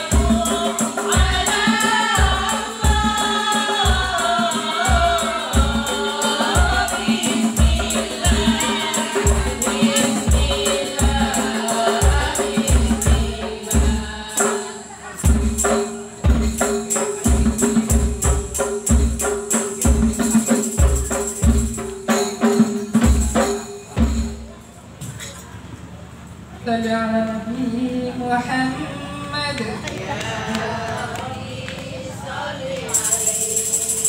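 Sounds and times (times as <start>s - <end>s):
women singing devotional song: 0.0s - 17.5s, 26.7s - 34.0s.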